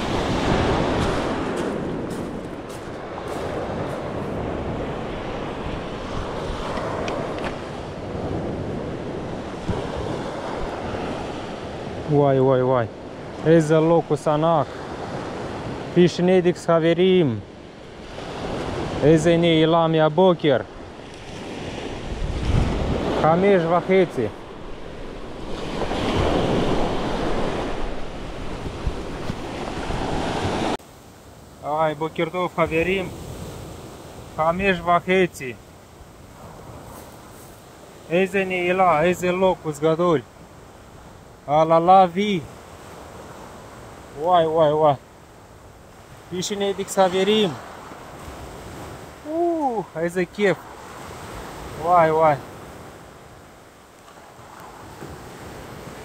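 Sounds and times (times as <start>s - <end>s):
wind rumbling on microphone: 0.0s - 12.1s, 20.8s - 30.8s
waves washing on pebble shore: 0.0s - 12.2s, 25.2s - 30.8s.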